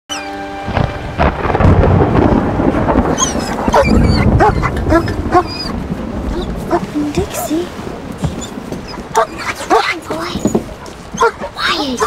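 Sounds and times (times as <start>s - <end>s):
thunder rumbling: 0.3s - 12.0s
dog whining: 3.1s - 7.5s, 8.3s - 12.0s.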